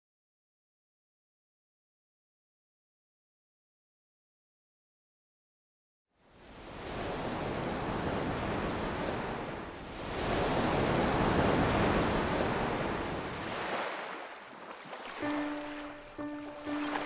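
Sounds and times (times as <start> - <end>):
waves breaking on rocks: 7.2 - 17.0.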